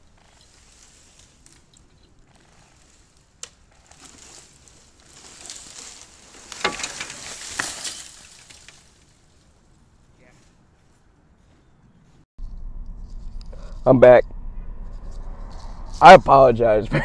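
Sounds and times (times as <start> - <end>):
wood cracking: 0.0 - 9.3
branches swishing and breaking: 0.0 - 9.4
tree crown hitting ground: 0.2 - 9.3.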